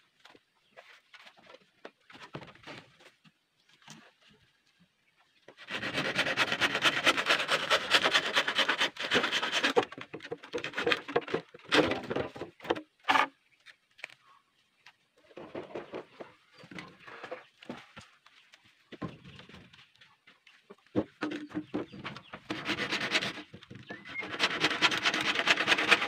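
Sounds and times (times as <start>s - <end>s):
knocks and scrapes: 5.5s - 13.4s, 15.2s - 26.0s
handsaw cutting bamboo: 5.6s - 12.2s, 22.4s - 26.0s.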